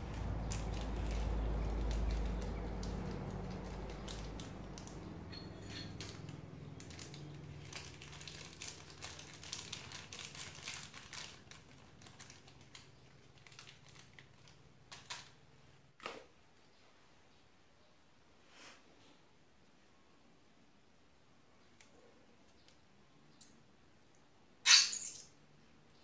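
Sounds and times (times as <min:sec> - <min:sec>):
plastic bag crinkling: 0:00.0 - 0:05.1, 0:05.8 - 0:15.4
beads crackling and clicking: 0:24.7 - 0:25.2.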